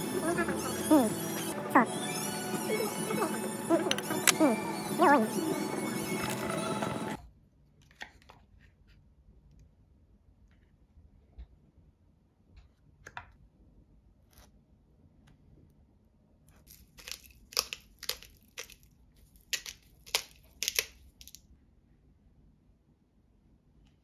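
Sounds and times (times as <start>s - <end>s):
pepper grinder grinding: 0.0s - 7.2s, 16.7s - 21.4s.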